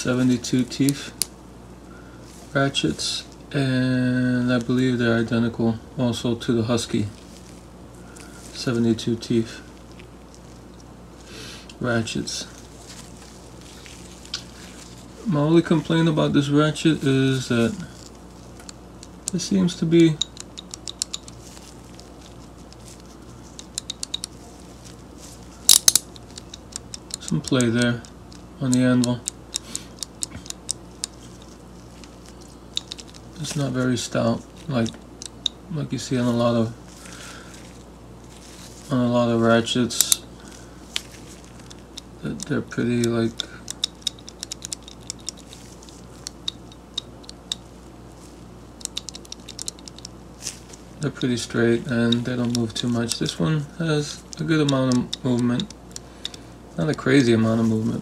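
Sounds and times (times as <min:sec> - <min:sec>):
ratchet metallic clicks: 0:18.6 - 0:24.4, 0:25.7 - 0:31.5, 0:32.4 - 0:35.6, 0:39.9 - 0:40.2, 0:41.6 - 0:47.7, 0:48.8 - 0:50.2, 0:51.0 - 0:57.3.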